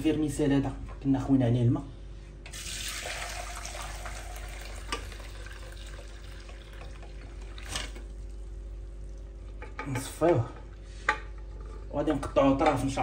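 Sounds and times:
water pouring through strainer: 2.6 - 9.2.

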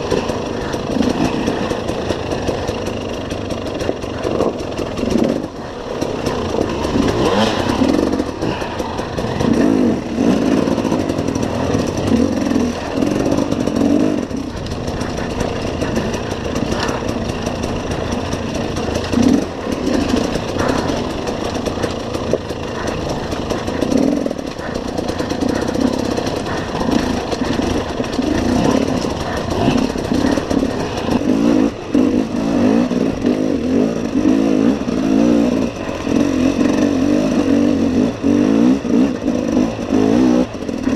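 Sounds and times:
motorcycle engine revving: 0.0 - 40.9.

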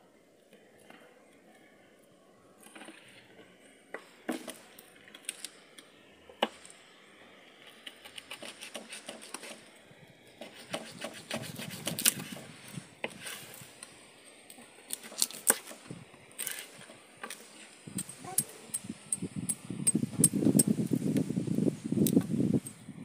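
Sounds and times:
knife scraping fish: 7.8 - 9.7, 10.4 - 12.5.

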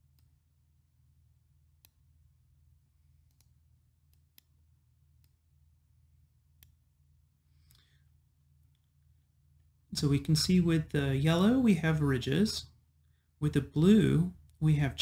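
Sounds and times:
computer mouse clicks: 0.0 - 0.4, 1.8 - 2.1, 3.1 - 5.4, 6.5 - 6.8
faint low hum: 0.0 - 15.0.

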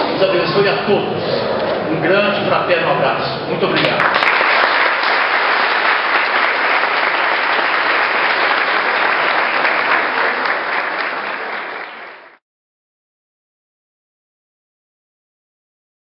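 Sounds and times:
crowd applauding: 3.8 - 12.4.

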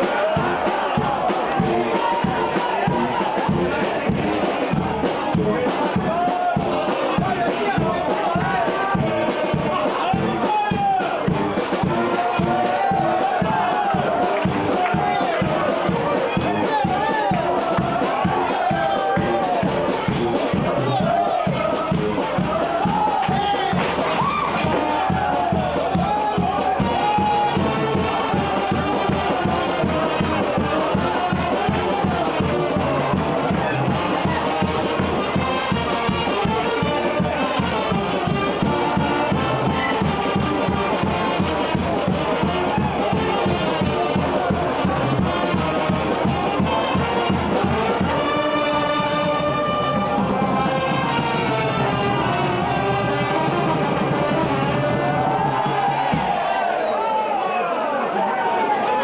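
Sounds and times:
steady drum beat: 0.0 - 56.8
trumpets and trombones: 0.0 - 56.8.

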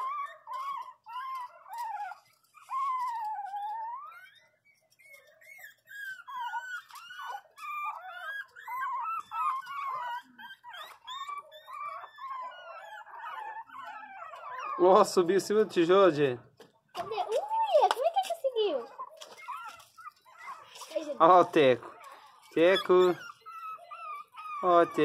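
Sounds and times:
puppies whining and crying: 0.0 - 25.0.

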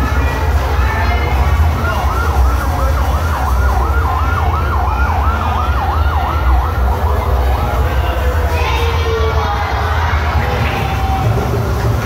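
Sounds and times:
ambulance siren yelping: 0.9 - 8.5.

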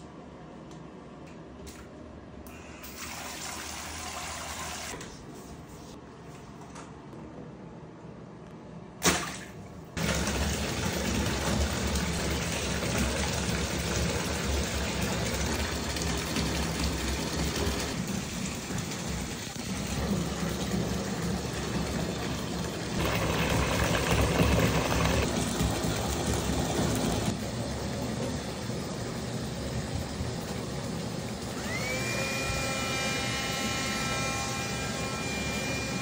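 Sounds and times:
bathtub spout running into water: 10.0 - 34.0.

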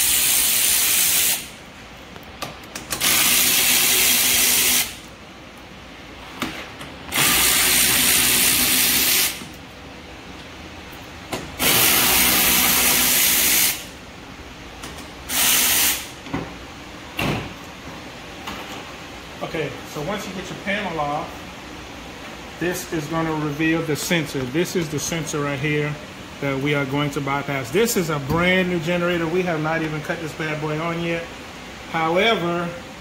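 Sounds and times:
power ratchet whirring: 2.9 - 5.0, 7.1 - 9.4, 11.6 - 13.9.

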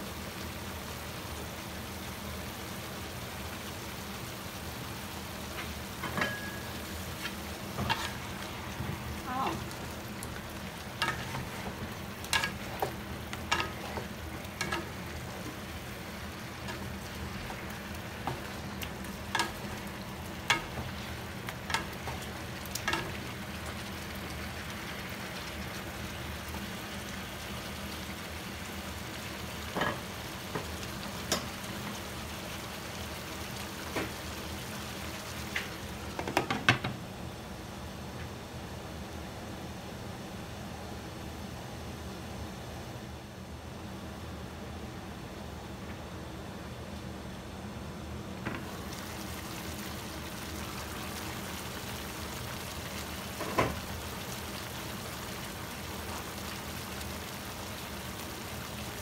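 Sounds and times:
meat frying in a pan: 0.0 - 37.0, 48.4 - 59.0
spatula scraping against pan: 7.2 - 8.5.

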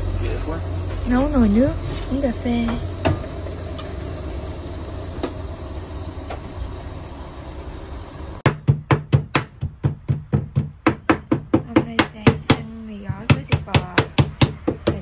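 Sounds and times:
low rumble: 0.0 - 8.4.

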